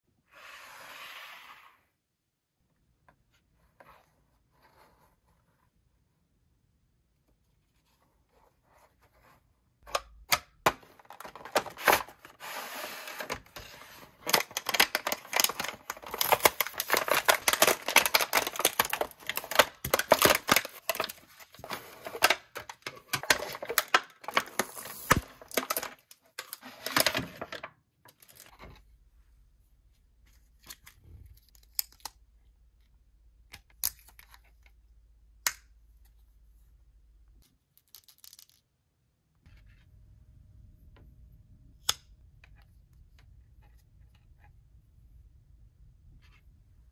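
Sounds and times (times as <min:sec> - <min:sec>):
plastic bag crinkling: 0:14.1 - 0:27.5.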